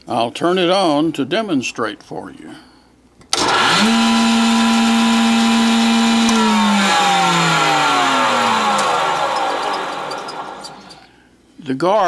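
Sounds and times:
jointer cutterhead whine: 0:03.3 - 0:11.0.

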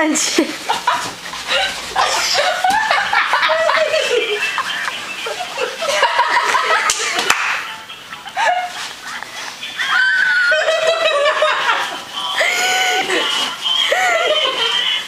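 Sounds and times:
people talking: 0:00.0 - 0:00.6, 0:01.5 - 0:15.0
people laughing: 0:00.4 - 0:15.0
sharp slaps: 0:06.8 - 0:07.7.

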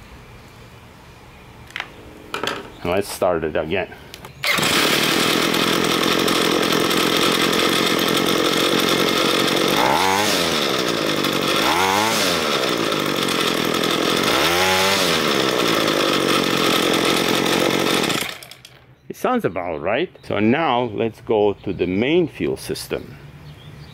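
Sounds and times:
string trimmer engine idling and revving: 0:04.4 - 0:18.8.

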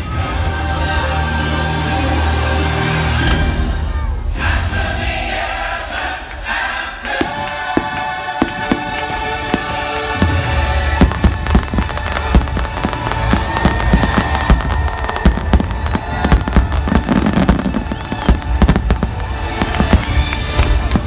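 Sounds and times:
music playing: 0:00.0 - 0:21.0
fireworks bangs: 0:07.0 - 0:21.0.

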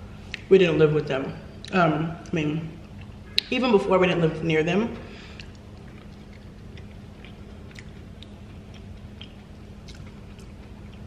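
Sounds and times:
steady low hum: 0:00.0 - 0:11.0
wet chewing mouth clicks: 0:05.3 - 0:11.0.

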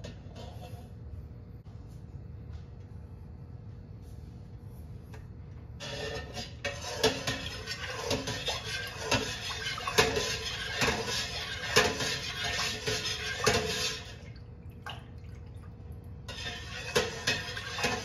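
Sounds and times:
ladle swishing through liquid: 0:05.8 - 0:18.0.

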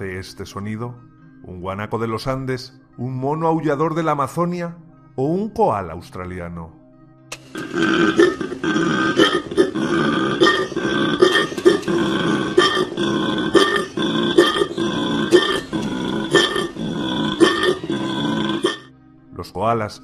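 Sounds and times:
koala bellowing: 0:07.6 - 0:18.9.

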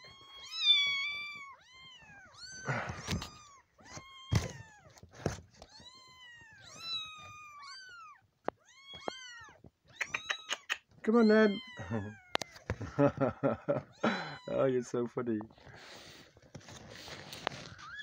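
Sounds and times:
kittens mewing: 0:00.0 - 0:05.1, 0:05.7 - 0:14.8
knocks and rustles: 0:02.8 - 0:06.0.

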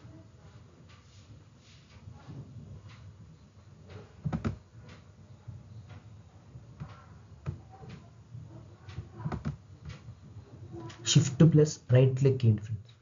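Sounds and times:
low room hum: 0:00.0 - 0:13.0
desk taps: 0:04.2 - 0:04.6.

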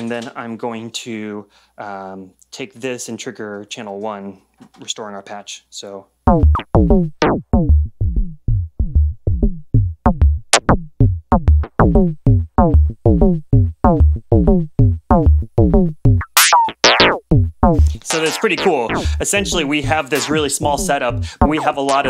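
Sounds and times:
synth notes falling in pitch: 0:06.3 - 0:09.6, 0:10.2 - 0:19.8
deep bass thump: 0:06.3 - 0:18.1, 0:18.9 - 0:21.6
high falling synth zap: 0:16.2 - 0:20.6.

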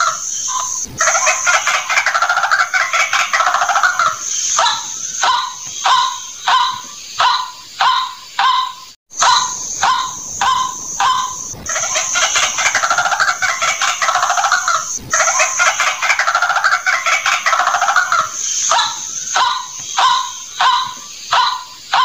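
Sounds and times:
bird rattling chatter: 0:00.0 - 0:04.4, 0:09.3 - 0:20.7
bird calling harsh notes: 0:00.0 - 0:22.0.

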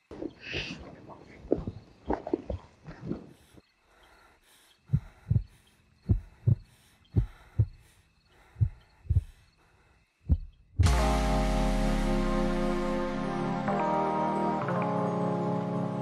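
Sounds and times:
heartbeat thumps: 0:04.9 - 0:09.5, 0:10.2 - 0:11.2.

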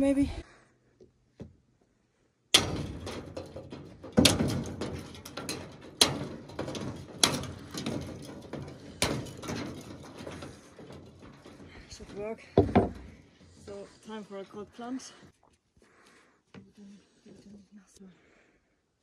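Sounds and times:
broken ice clattering: 0:02.6 - 0:14.2.

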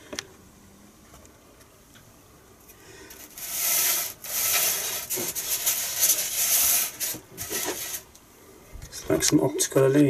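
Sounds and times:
foam scraping on wooden table: 0:03.1 - 0:08.1.

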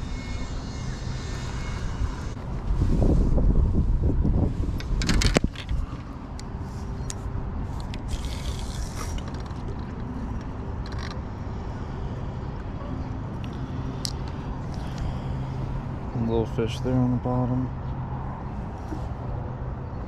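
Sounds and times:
wind on microphone: 0:01.6 - 0:06.2.

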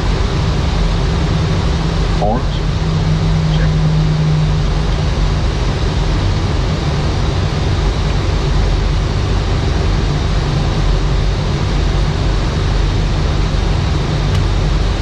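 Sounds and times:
faint high whine: 0:00.0 - 0:08.1
low rumble: 0:00.0 - 0:15.0.

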